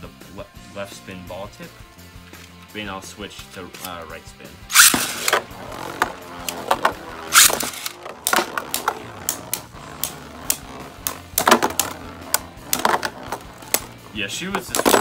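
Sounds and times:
spinning tops clacking: 0:04.7 - 0:14.0
whir of spinning tops: 0:04.7 - 0:15.0.

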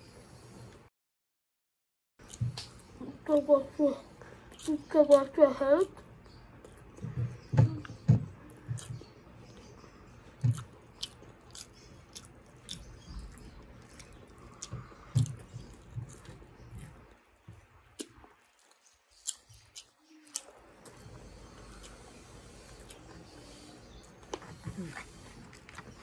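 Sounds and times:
wet chewing clicks and smacks: 0:07.8 - 0:22.0, 0:24.0 - 0:26.0.

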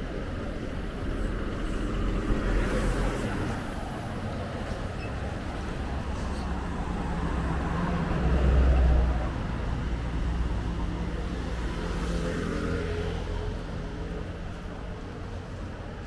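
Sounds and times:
road traffic noise: 0:00.0 - 0:16.0.

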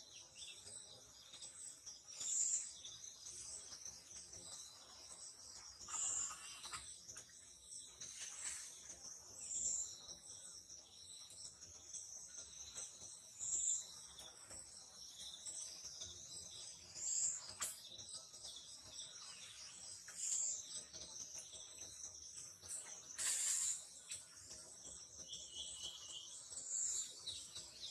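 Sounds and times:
insects chorus: 0:05.8 - 0:06.8.

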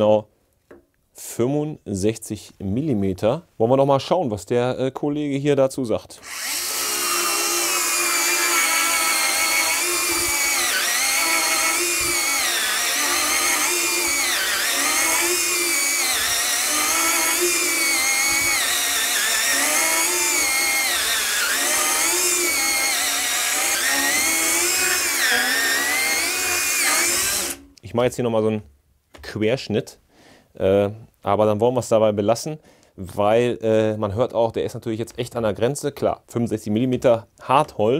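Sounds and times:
mini chainsaw cutting wood: 0:06.2 - 0:27.6.

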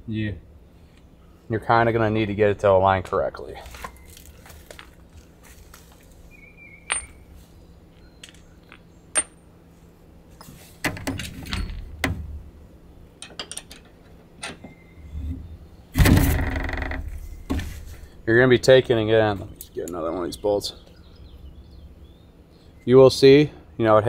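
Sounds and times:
dull knocks and scuffing: 0:17.0 - 0:18.2.

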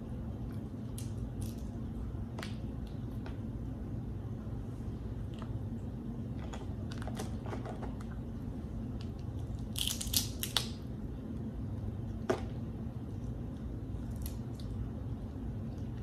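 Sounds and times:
crab shells cracking: 0:09.6 - 0:10.8.

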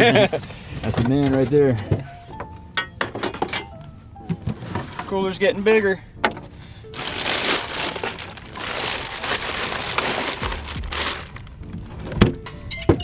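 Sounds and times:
plastic bag crinkling: 0:06.9 - 0:11.5.

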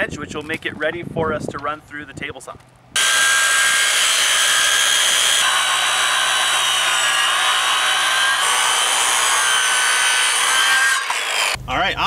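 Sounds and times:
circular saw motor whine: 0:03.0 - 0:11.6
saw blade rasping through wood: 0:03.0 - 0:11.6.

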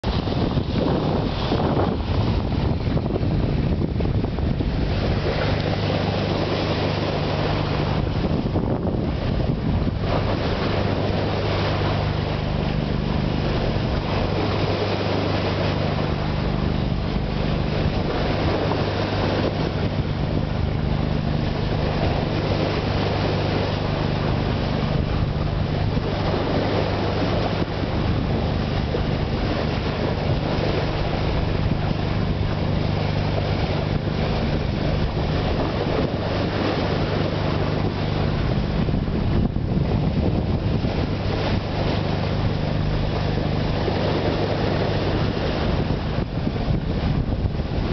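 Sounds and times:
low drone of ship engine: 0:00.0 - 0:47.9
water rushing along hull: 0:00.0 - 0:47.9
wind buffeting microphone: 0:00.0 - 0:47.9.

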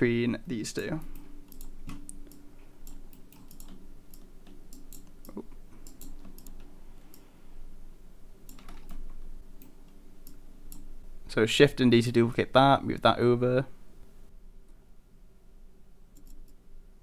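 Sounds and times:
faint low hum: 0:00.0 - 0:17.0
keyboard keys clicking: 0:01.0 - 0:07.2, 0:08.5 - 0:10.9
mouse buttons clicking: 0:16.2 - 0:16.6.

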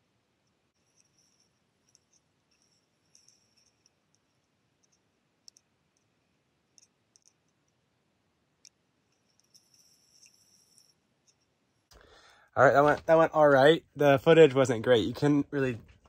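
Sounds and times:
faint high-pitched clicks: 0:01.8 - 0:07.8.

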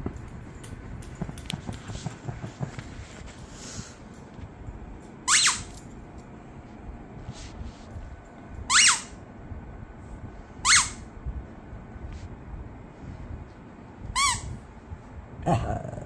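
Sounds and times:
squeaky dog toy squeaking: 0:05.2 - 0:05.8, 0:08.7 - 0:09.2, 0:10.6 - 0:11.0, 0:14.2 - 0:14.6.

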